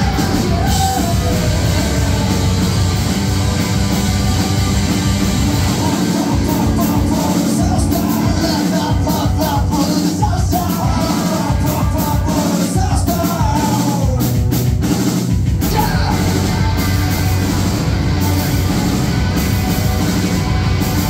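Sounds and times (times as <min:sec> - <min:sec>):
bass guitar: 0:00.0 - 0:21.0
drums: 0:00.0 - 0:21.0
electric guitars: 0:00.0 - 0:21.0
person singing: 0:05.5 - 0:17.1.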